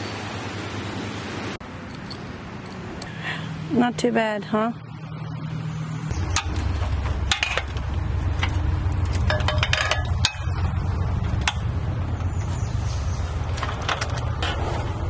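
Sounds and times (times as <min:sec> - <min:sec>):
steady low hum: 0:00.0 - 0:15.0
metal rigging hardware clinking: 0:01.8 - 0:03.2, 0:06.4 - 0:11.7.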